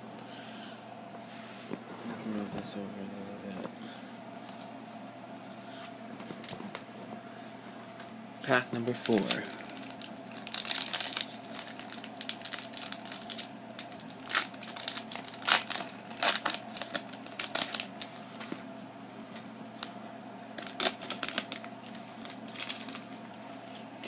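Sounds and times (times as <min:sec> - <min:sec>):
foil wrapper crinkling: 0:08.8 - 0:18.6, 0:20.6 - 0:23.4.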